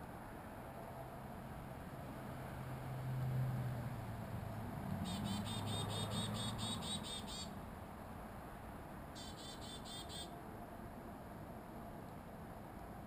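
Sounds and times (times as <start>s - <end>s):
songbird repeating high notes: 5.1s - 7.5s, 9.2s - 10.3s.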